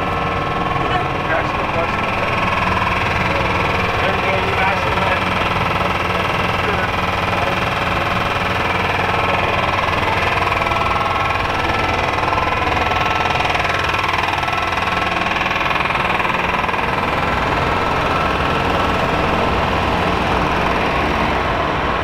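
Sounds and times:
diesel truck engine idling: 0.0 - 22.0.

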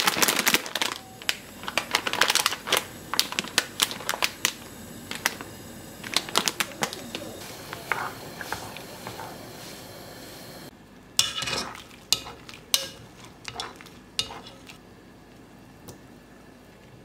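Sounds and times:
water boiling in pot: 0.0 - 17.0
utensils scraping against pot: 6.0 - 10.3, 11.2 - 14.8.

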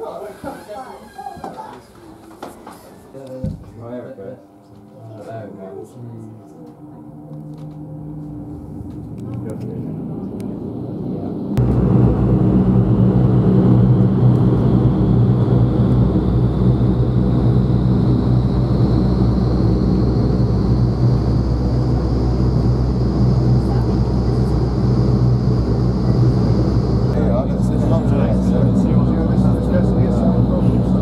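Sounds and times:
low fan hum: 4.1 - 31.0
faint rising whine: 5.7 - 31.0
rushing air: 9.8 - 31.0.

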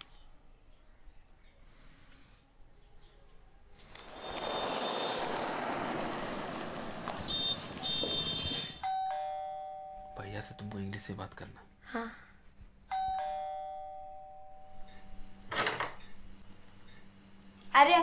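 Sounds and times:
street traffic: 3.6 - 9.0
motorbike passing: 3.8 - 8.8
electronic doorbell chime: 8.8 - 10.2, 12.9 - 17.4.

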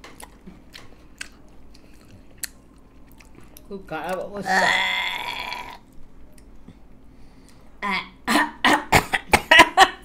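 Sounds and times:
strained groan: 4.4 - 5.8
person coughing: 7.9 - 9.9.

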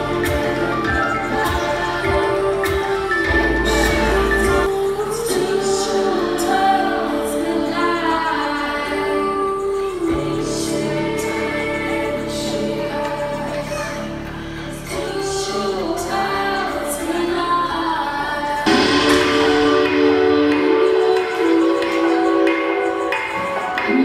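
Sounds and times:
person singing with band: 18.6 - 24.0
cymbal strikes: 18.7 - 23.4.

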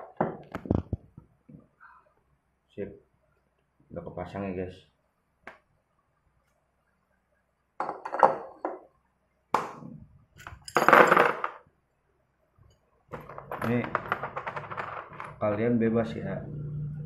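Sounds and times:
metal parts clinking and scraping: 10.4 - 11.5, 13.1 - 15.5.

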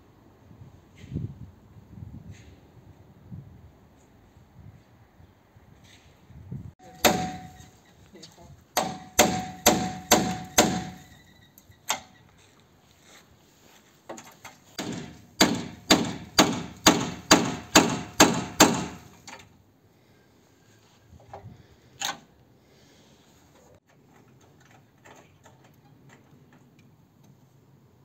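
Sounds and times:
hammer blows: 6.8 - 7.8, 8.8 - 11.2, 14.8 - 19.1.

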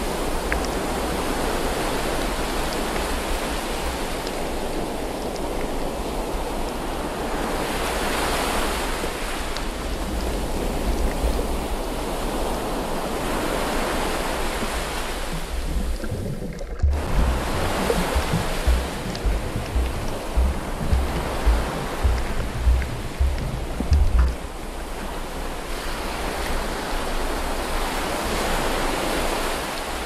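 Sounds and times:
underwater rushing water: 0.0 - 30.0
low irregular thumps: 15.3 - 24.6.

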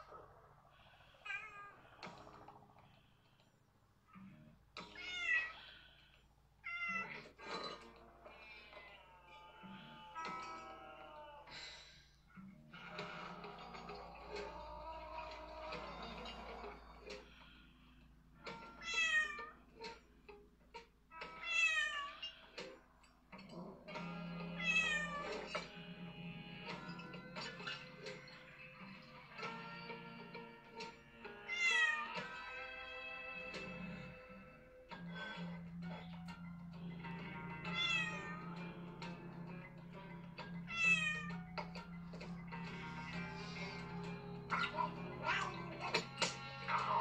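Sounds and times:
film music from television: 0.0 - 47.0
cat meowing: 1.2 - 2.0, 4.8 - 5.8, 6.6 - 7.4, 8.3 - 11.5, 18.8 - 19.6, 21.1 - 22.5, 24.5 - 25.6, 31.4 - 32.3, 37.6 - 38.6, 40.7 - 41.6, 44.5 - 46.0
film music: 23.5 - 47.0.

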